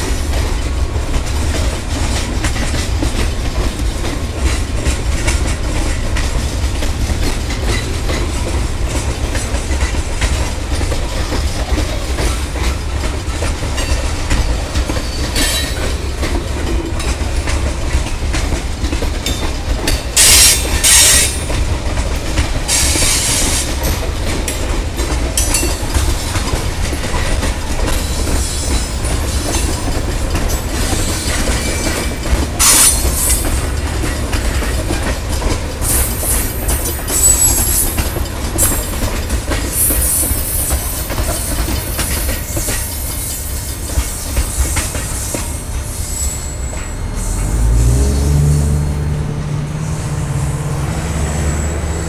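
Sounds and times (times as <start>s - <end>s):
train wheels clicking over rail joints: 0.0s - 49.6s
wheel flange squeals: 35.8s - 38.9s, 39.8s - 47.6s.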